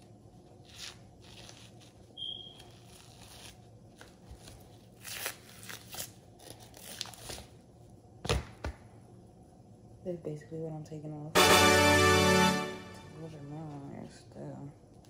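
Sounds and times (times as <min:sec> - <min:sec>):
membrane tearing and crinkling: 0:00.6 - 0:07.6.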